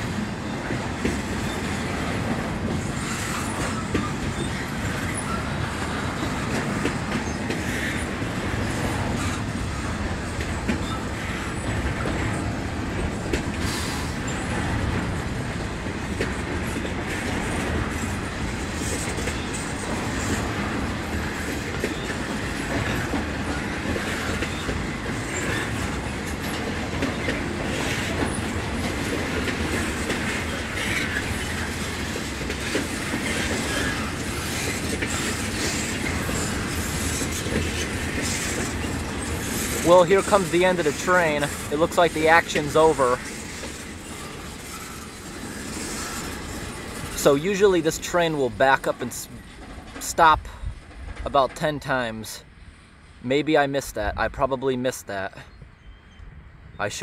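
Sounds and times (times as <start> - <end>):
wheels clacking over rails: 0.0 - 50.1
freight train cars rumbling past: 0.0 - 57.0
brief wheel squeal: 2.8 - 5.5, 55.5 - 56.4.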